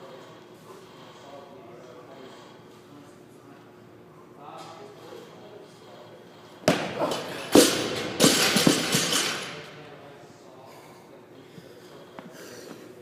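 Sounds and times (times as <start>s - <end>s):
barbell dropped and bouncing: 6.6s - 9.6s
weight plates rattling: 7.2s - 9.6s.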